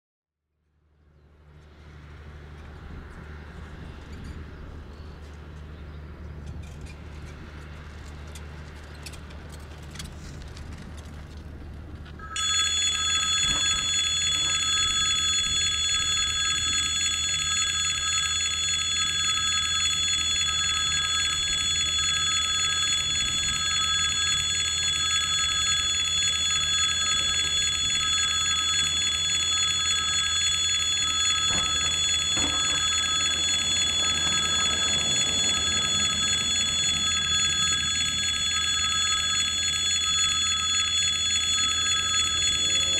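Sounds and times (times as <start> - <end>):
level crossing warning bell: 12.2 - 42.9.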